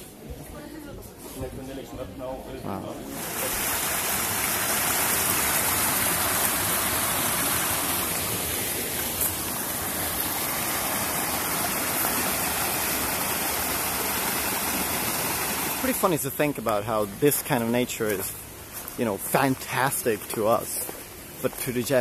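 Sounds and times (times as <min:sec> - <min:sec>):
stream rushing over rocks: 0:03.1 - 0:22.0.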